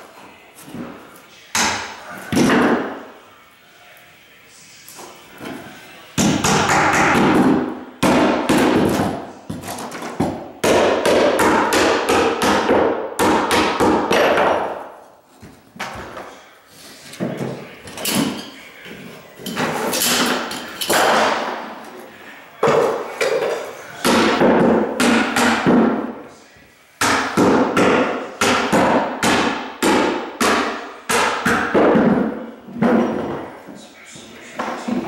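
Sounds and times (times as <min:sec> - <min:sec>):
hammer nailing into wood: 0:06.2 - 0:14.8, 0:24.0 - 0:26.1, 0:27.0 - 0:33.1.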